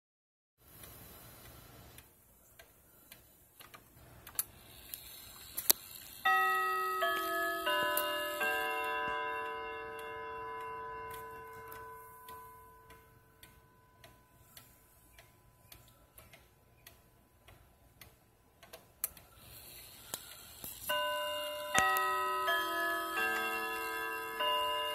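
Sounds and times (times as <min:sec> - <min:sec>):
clock ticking: 0:00.6 - 0:24.9
wall clock chime: 0:06.2 - 0:16.1, 0:20.8 - 0:24.9.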